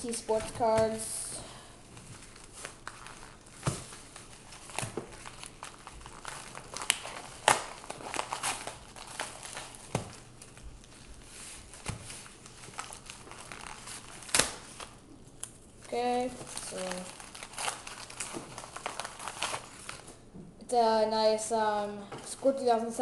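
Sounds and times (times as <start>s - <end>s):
packaging crinkling and tearing: 1.9s - 20.3s.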